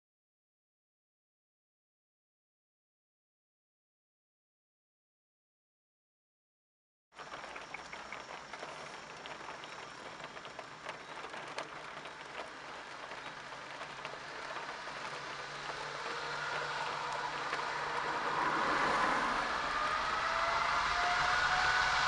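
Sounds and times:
raindrop ticks: 0:07.2 - 0:19.3
jet engines humming: 0:07.2 - 0:22.0
rain hissing: 0:07.2 - 0:22.0.

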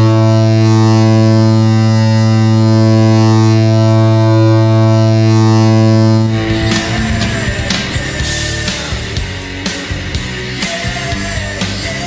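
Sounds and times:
rock song with drums: 0:06.3 - 0:12.0.

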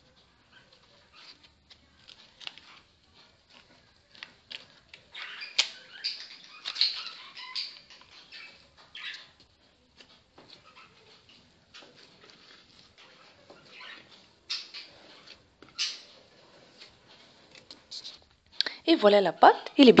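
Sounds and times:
hands kneading dough in a bowl: 0:00.0 - 0:05.2, 0:07.9 - 0:18.6.

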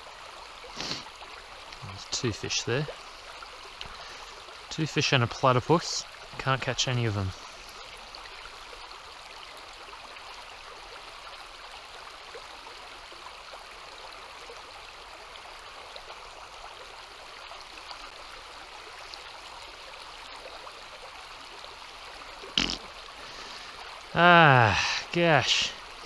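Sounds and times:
river water flowing: 0:00.0 - 0:26.0.

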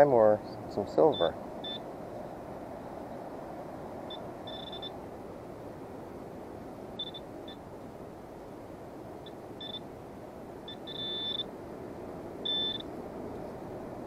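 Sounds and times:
high electronic detector beeps: 0:01.1 - 0:01.8, 0:04.1 - 0:05.0, 0:07.0 - 0:07.6, 0:09.2 - 0:09.9, 0:10.7 - 0:11.5, 0:12.4 - 0:12.9.

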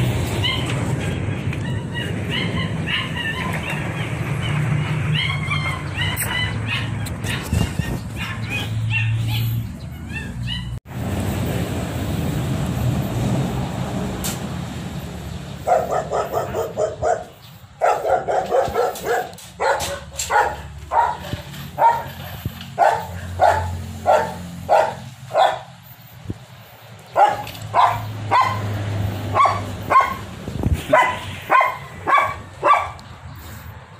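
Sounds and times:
dog barking: 0:05.2 - 0:10.7, 0:15.6 - 0:25.8, 0:27.1 - 0:30.2, 0:30.9 - 0:33.1.

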